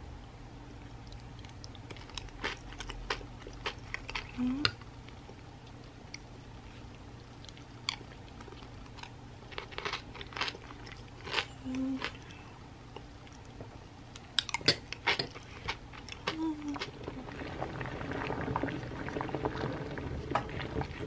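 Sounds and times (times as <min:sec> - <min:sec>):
chewing with crunches: 0:01.0 - 0:17.2.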